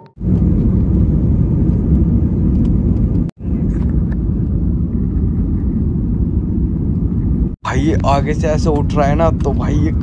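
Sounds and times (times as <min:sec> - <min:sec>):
jet engines and rushing air: 0:00.0 - 0:10.0.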